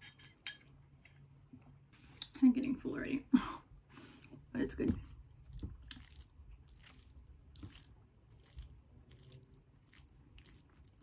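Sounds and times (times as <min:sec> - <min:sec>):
faint chewing of food: 0:05.1 - 0:11.0.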